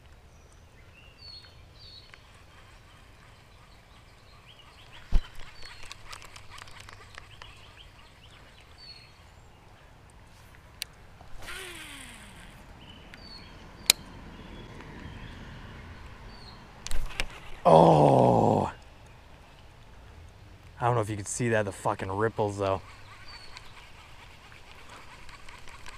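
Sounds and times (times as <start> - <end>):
bird chirps: 0.3 - 9.9, 12.5 - 16.6, 22.0 - 24.2
fishing reel spool whirring: 2.1 - 9.3, 11.3 - 13.9, 22.0 - 25.9.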